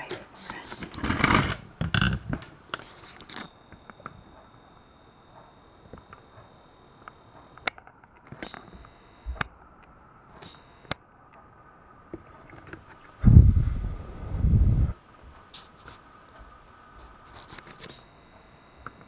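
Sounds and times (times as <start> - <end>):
faint high whine: 0.0 - 19.0
sharp clicks: 7.0 - 11.5.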